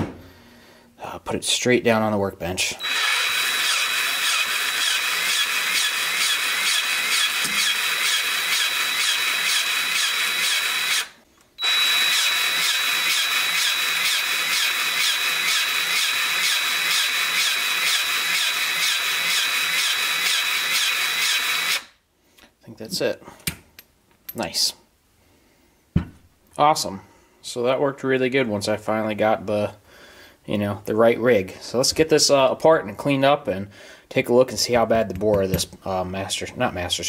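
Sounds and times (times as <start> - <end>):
powered grease gun whining: 2.8 - 21.9.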